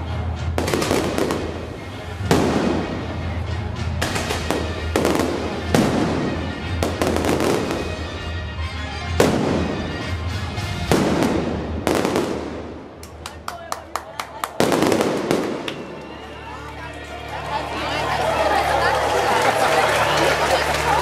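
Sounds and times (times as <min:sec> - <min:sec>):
firework bangs: 0:00.6 - 0:03.3, 0:03.9 - 0:08.2, 0:09.1 - 0:13.2, 0:14.5 - 0:16.2
firework crackling: 0:00.6 - 0:08.2, 0:09.1 - 0:16.5.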